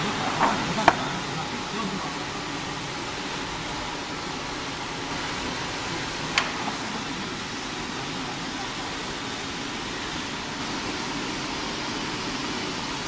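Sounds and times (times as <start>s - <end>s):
machinery hiss and hum: 0.0s - 13.0s.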